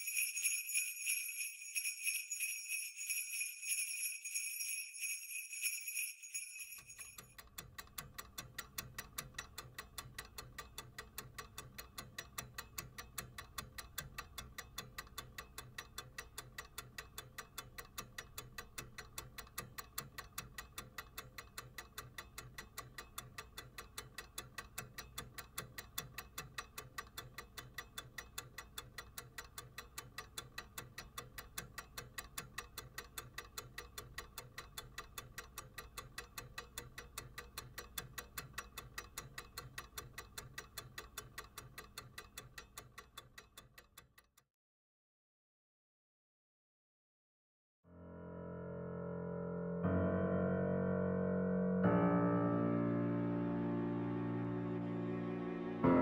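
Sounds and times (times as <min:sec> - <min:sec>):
clock ticking: 0:00.0 - 0:44.4.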